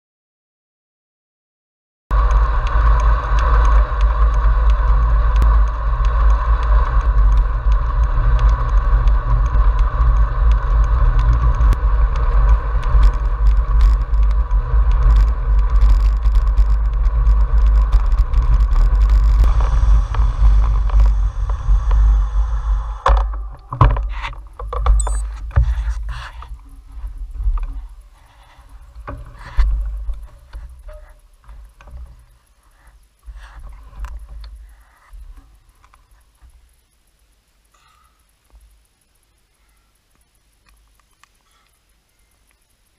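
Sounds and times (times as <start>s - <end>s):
wind buffeting: 2.1s - 25.2s
bicycle tyre rumble: 2.1s - 38.4s
bicycle clicks and knocks: 2.2s - 22.1s, 23.0s - 38.7s.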